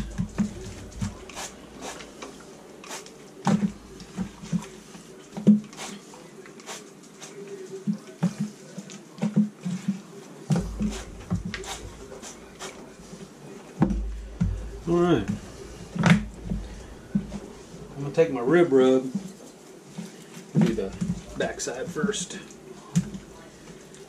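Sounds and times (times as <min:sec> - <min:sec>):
hands rubbing wet chicken skin: 0:00.0 - 0:07.5, 0:10.5 - 0:13.4.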